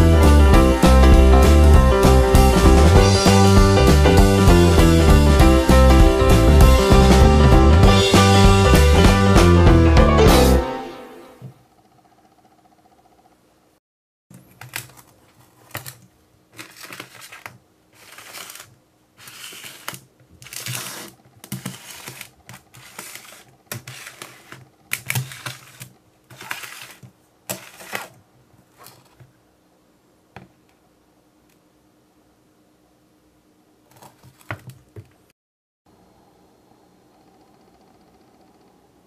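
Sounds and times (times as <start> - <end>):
metal pan rubbing and scraping: 18.0 - 24.6, 25.2 - 28.2.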